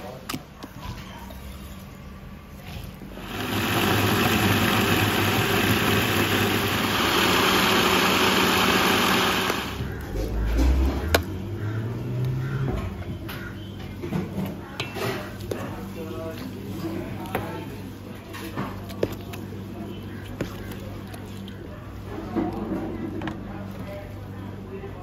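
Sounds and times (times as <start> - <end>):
electric blender grinding: 3.1 - 10.0.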